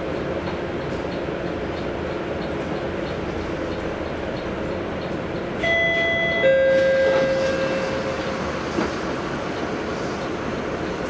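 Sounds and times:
diesel bus engine idling: 0:00.0 - 0:11.0
two-note door chime: 0:05.6 - 0:08.2.

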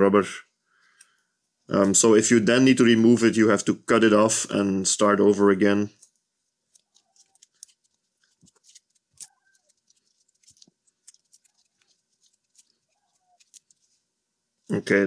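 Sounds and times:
rubber tape stretching and rubbing: 0:06.6 - 0:14.0.

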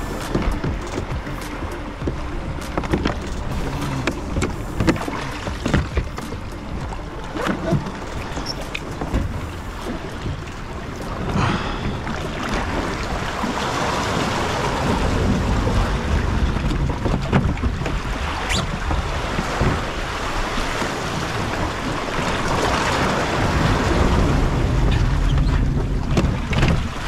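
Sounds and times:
sharp knocks or splashes: 0:00.0 - 0:20.0
wind buffeting microphone: 0:00.0 - 0:27.0
sea swell washing around rocks: 0:01.5 - 0:27.0.

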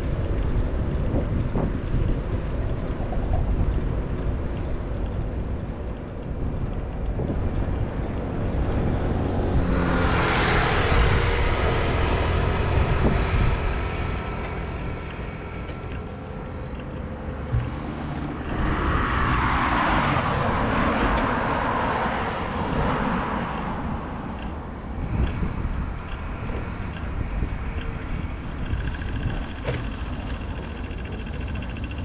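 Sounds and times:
city traffic rumble: 0:00.0 - 0:32.0
vehicle passing close with whine: 0:07.9 - 0:23.8.

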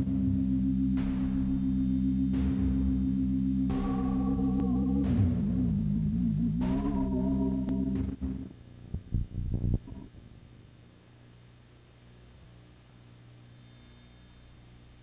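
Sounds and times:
choppy synthesizer music from tape: 0:00.0 - 0:10.1
faint low hum: 0:00.0 - 0:15.0.

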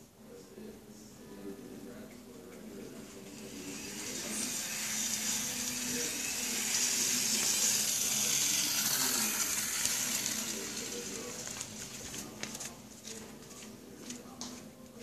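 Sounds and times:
faint voices: 0:00.2 - 0:15.0
steady hiss: 0:02.5 - 0:12.4.

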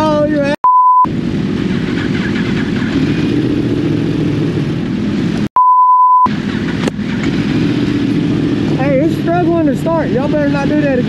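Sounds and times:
censor bleep: 0:00.6 - 0:01.1, 0:05.6 - 0:06.3
motorcycle engines running: 0:01.1 - 0:05.5, 0:06.3 - 0:11.0.

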